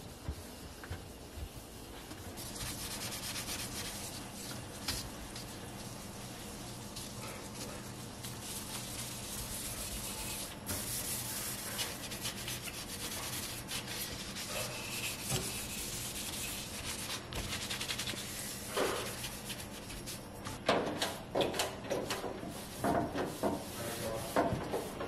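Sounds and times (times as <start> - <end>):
scrubbing glass: 2.3 - 20.2.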